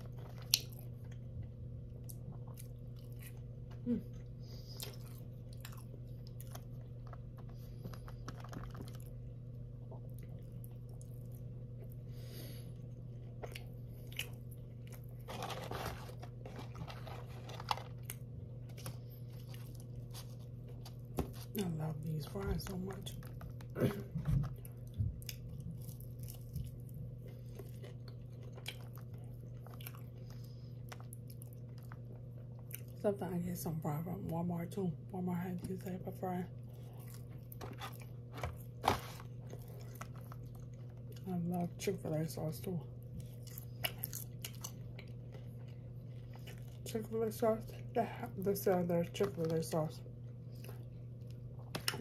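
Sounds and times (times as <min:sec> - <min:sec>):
crunchy chewing: 0:00.0 - 0:12.0, 0:12.6 - 0:21.7, 0:22.6 - 0:33.0, 0:36.6 - 0:41.3, 0:43.0 - 0:47.0
steady low hum: 0:00.0 - 0:52.0.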